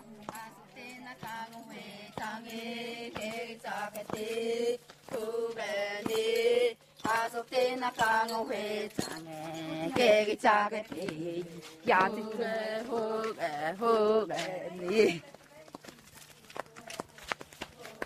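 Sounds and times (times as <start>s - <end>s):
voices chanting: 0.0s - 15.2s.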